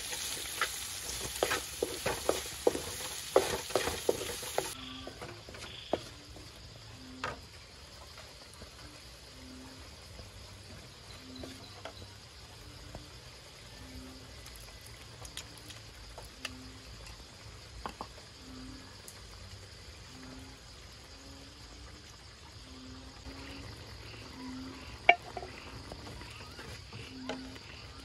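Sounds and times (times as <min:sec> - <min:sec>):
high insect hum: 0:00.0 - 0:28.0
frog calling with low notes: 0:22.5 - 0:28.0.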